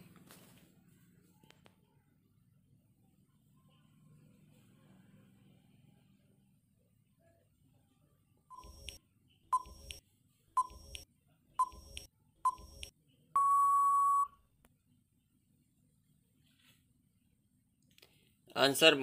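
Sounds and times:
short countdown beeps with thumps: 10.6s - 11.0s, 11.6s - 14.3s
long time out beep: 13.4s - 14.4s.

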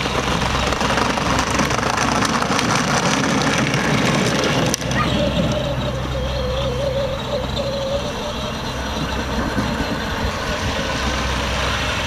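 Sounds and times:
wavering whine: 0.0s - 12.0s
toy electric motor running: 3.4s - 11.7s.

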